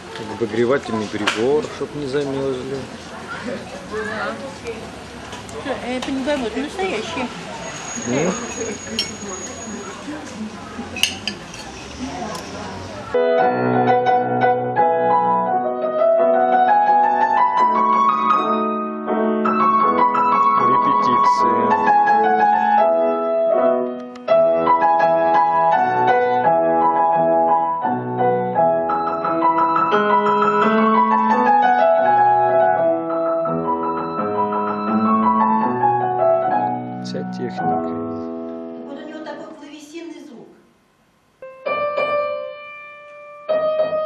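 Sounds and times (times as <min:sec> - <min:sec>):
grand piano playing: 0:13.1 - 0:39.1, 0:41.4 - 0:44.0.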